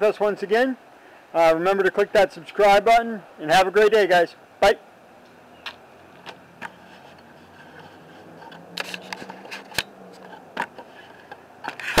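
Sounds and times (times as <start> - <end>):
camera body clicks and knocks: 8.4 - 12.0.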